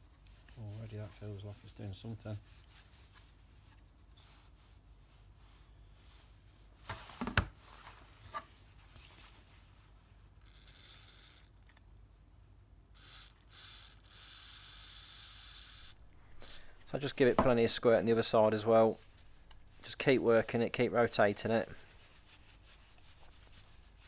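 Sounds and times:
aerosol spray hissing: 0:15.8 - 0:18.3.

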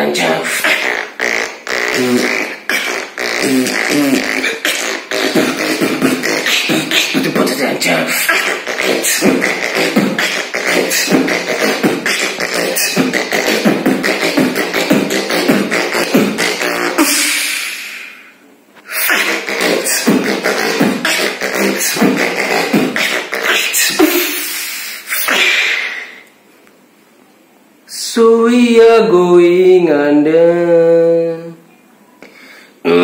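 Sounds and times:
beatboxing rhythm: 0:00.0 - 0:26.4.

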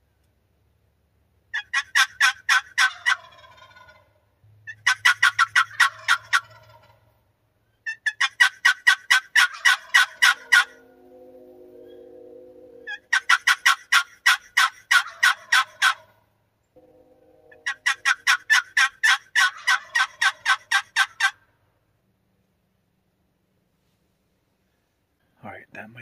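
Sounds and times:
wild turkey calling: 0:01.5 - 0:16.2, 0:16.8 - 0:21.5.

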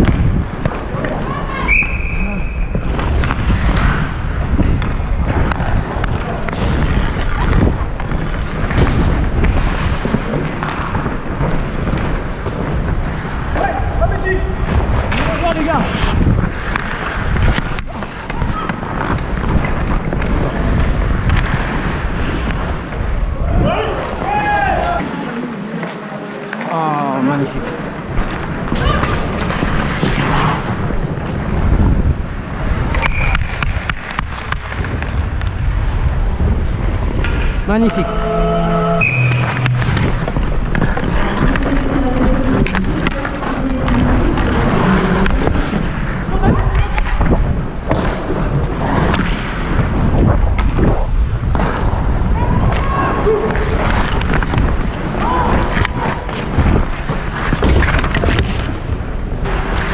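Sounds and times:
hockey sticks and puck clacking: 0:00.0 - 0:23.3, 0:27.6 - 0:31.8, 0:32.6 - 0:35.8, 0:36.6 - 0:38.4, 0:39.0 - 0:59.9
wind buffeting microphone: 0:00.0 - 0:24.0, 0:49.6 - 0:59.8
skate blades scraping ice: 0:00.0 - 0:26.7, 0:27.4 - 0:59.9.

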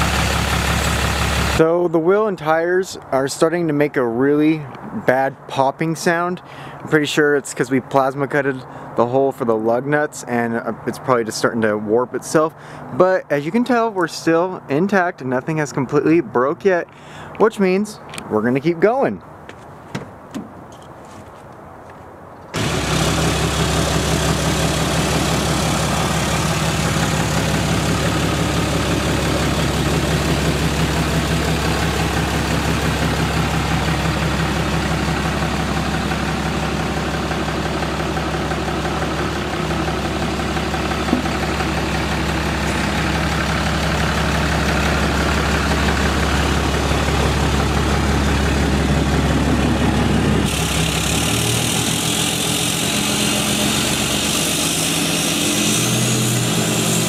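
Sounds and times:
diesel engine running: 0:00.0 - 0:05.3, 0:12.4 - 0:13.6, 0:16.8 - 0:17.4, 0:22.6 - 0:57.0.

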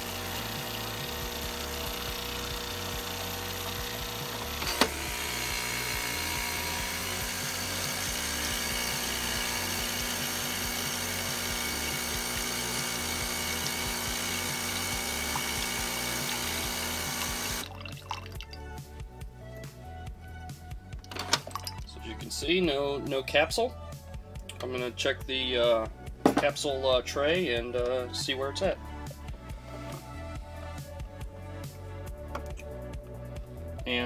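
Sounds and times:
coffee machine pump running: 0:00.0 - 0:18.5, 0:21.0 - 0:22.1
water trickling into a mug: 0:11.5 - 0:18.8, 0:21.0 - 0:22.0.

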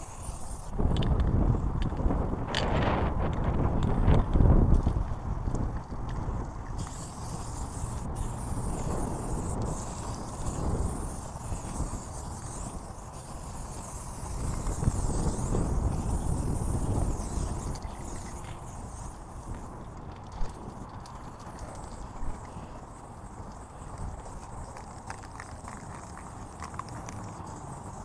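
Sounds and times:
aerosol spray can hissing: 0:00.0 - 0:00.8, 0:06.7 - 0:19.7, 0:21.4 - 0:28.0.

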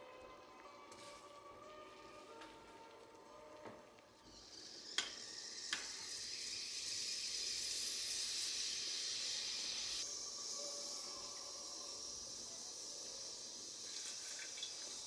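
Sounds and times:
broth boiling hard in a pot: 0:04.2 - 0:15.0.

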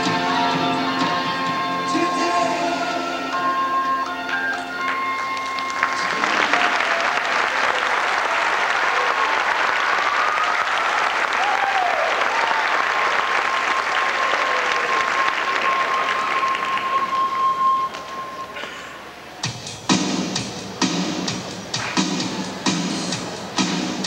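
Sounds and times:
dance music: 0:00.0 - 0:07.0, 0:19.4 - 0:24.0
audience applauding: 0:03.2 - 0:18.1.

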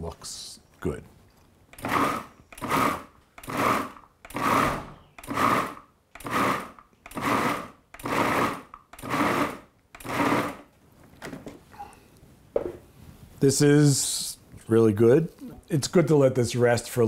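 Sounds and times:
food processor pulsing: 0:01.8 - 0:10.7.

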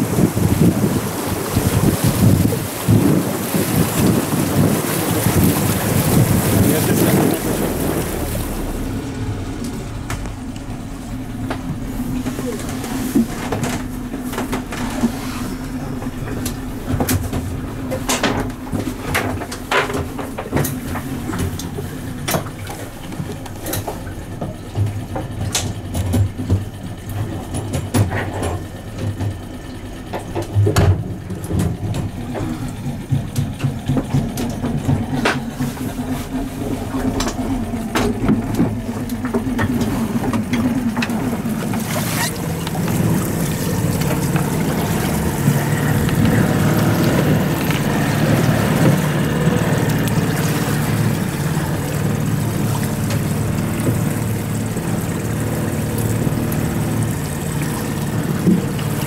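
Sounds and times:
low engine hum: 0:00.0 - 0:59.0
knocks and clatter in cabin: 0:10.1 - 0:54.2.

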